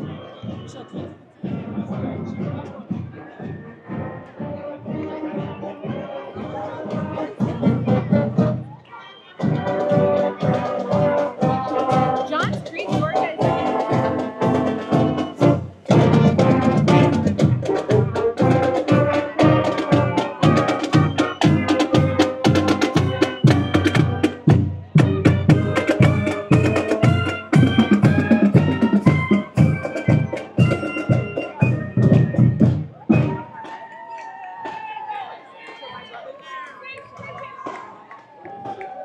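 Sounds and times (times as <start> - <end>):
steady drum beat: 0.0 - 8.7, 9.4 - 33.7
brass instruments playing: 3.9 - 8.6, 9.4 - 33.4.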